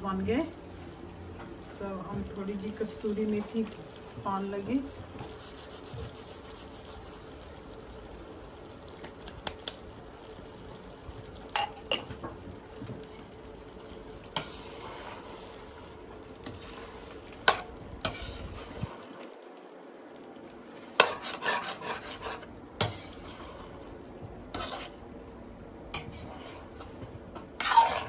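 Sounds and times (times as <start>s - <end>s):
chicken wings sizzling in a wok: 2.3s - 19.1s, 20.6s - 28.0s
metal spatula scraping a pan: 14.4s - 15.3s, 17.4s - 18.9s, 21.0s - 23.8s, 24.5s - 25.0s, 26.0s - 26.8s, 27.4s - 28.0s.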